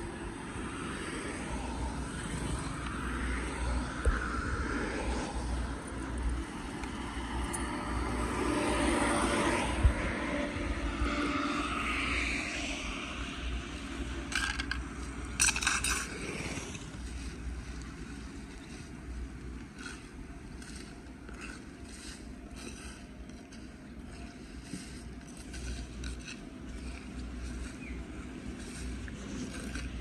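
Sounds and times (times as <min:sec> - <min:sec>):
road traffic passing: 0:00.0 - 0:30.0
scrapes and rustles of litter: 0:15.3 - 0:30.0.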